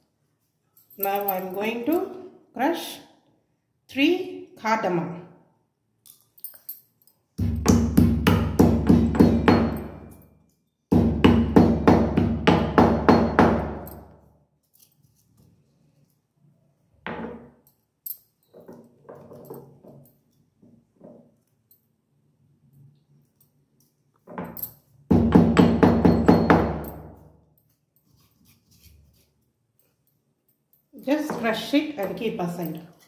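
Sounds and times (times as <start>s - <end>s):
stone pestle pounding in mortar: 7.4s - 10.0s, 10.9s - 13.8s.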